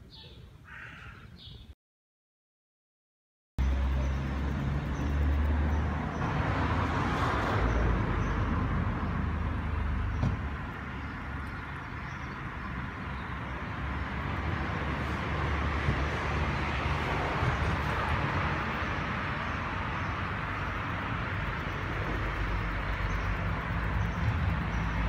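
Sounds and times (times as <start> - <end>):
traffic rumble: 3.6 - 25.0.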